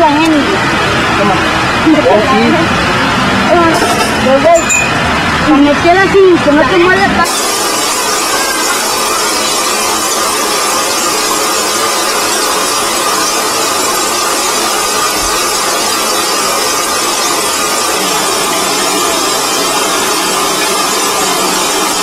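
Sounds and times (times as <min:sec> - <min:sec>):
shower head spraying water: 0:07.2 - 0:22.0.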